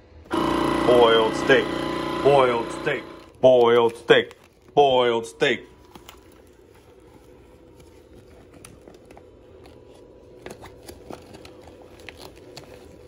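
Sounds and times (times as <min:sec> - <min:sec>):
immersion circulator humming: 0:00.0 - 0:03.4
plastic bag crinkling: 0:03.1 - 0:13.0.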